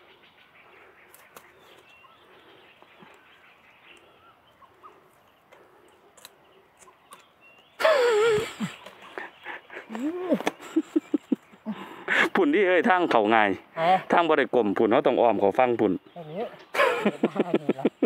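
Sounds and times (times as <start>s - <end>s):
rustling through dry brush: 0.0s - 7.8s
faint bird chirps: 0.0s - 11.8s.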